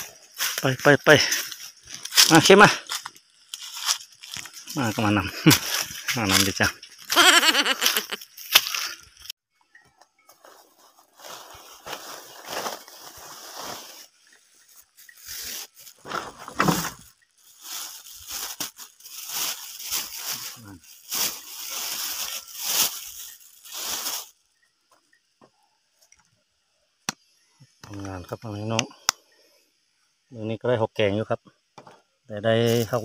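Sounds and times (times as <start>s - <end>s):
plastic bag crinkling: 10.4s - 24.4s.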